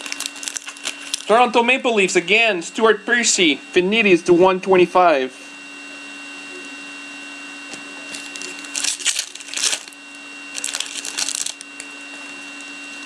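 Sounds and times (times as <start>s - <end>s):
foil wrapper crinkling and tearing: 0.0s - 1.5s, 8.1s - 12.8s
electrical hum: 0.0s - 13.0s.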